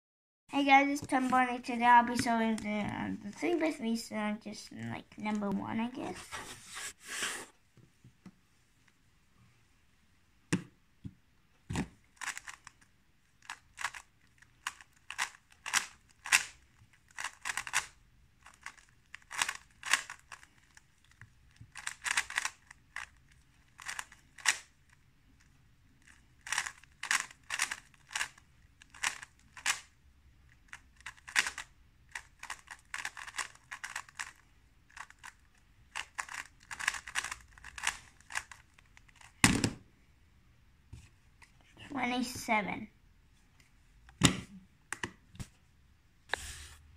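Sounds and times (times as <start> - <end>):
puzzle cube clicking: 11.8 - 24.8, 26.0 - 29.9, 30.7 - 39.4.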